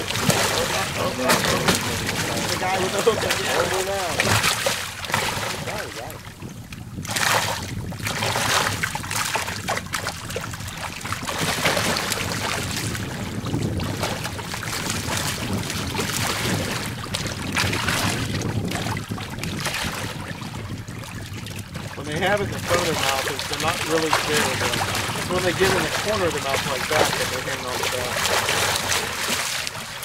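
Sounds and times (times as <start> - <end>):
sharks splashing in water: 0.0 - 6.2, 22.0 - 30.0
wind noise on microphone: 0.0 - 30.0.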